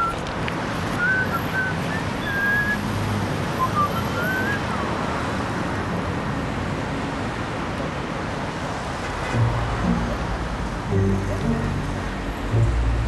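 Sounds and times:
street traffic noise: 0.0 - 13.0
birds chirping: 3.6 - 4.8.

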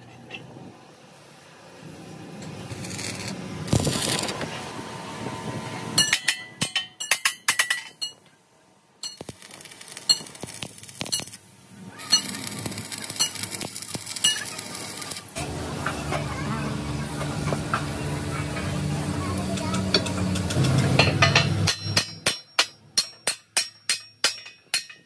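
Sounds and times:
steady machine hum: 11.6 - 22.2.

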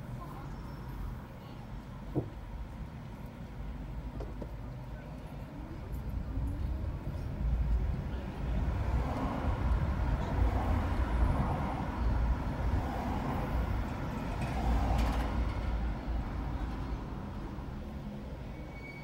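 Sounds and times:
car engine and tyres rumbling: 0.0 - 18.9.

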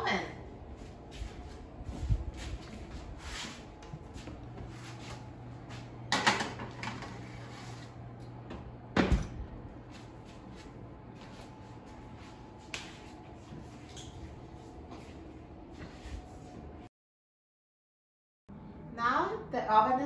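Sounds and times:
low steady hum: 0.0 - 16.9, 18.5 - 20.0
oven door shutting thud: 8.9 - 9.5.

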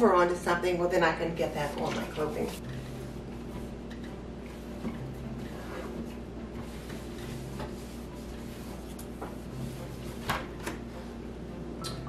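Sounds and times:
cloth rubbing on wooden door: 4.5 - 10.3.

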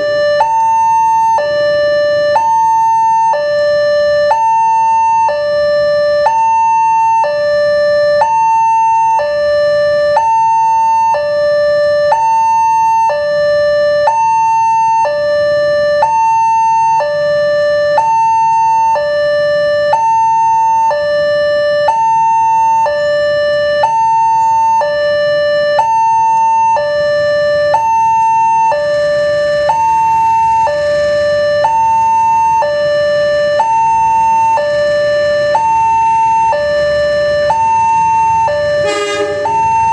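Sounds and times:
level crossing two-tone alarm: 0.0 - 39.9
faint train rushing: 38.6 - 39.9.

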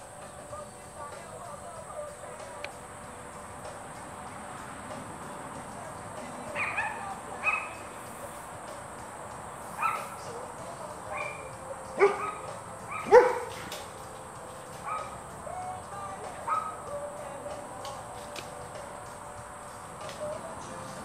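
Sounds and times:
small dog yipping: 6.6 - 7.8, 9.8 - 10.2, 11.1 - 13.7, 14.8 - 15.2.

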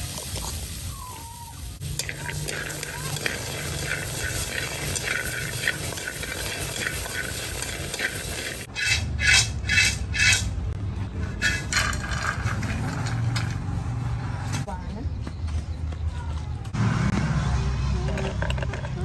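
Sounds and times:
seeds scraped out of wok: 0.0 - 1.0, 1.7 - 10.6, 11.2 - 13.8
seeds rattling in steel wok: 1.7 - 10.5, 11.4 - 13.8.

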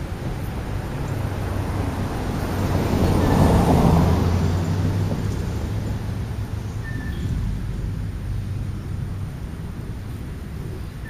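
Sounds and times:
vehicle passing by: 0.0 - 11.0
steady low hum: 5.6 - 11.0.

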